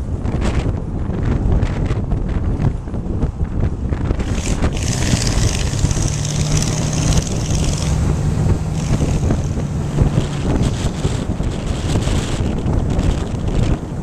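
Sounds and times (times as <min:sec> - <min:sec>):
wind and road noise: 0:00.0 - 0:14.0
car engine droning: 0:04.0 - 0:14.0.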